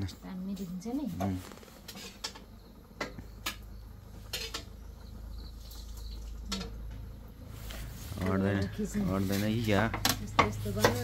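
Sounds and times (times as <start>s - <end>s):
low steady rumble: 2.5s - 11.0s.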